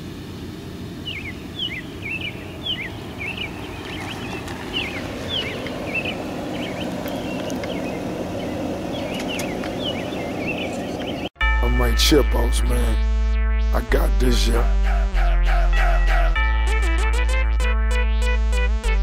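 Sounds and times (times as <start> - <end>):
car driving slowly: 0.0 - 11.4
birds chirping: 0.0 - 13.0.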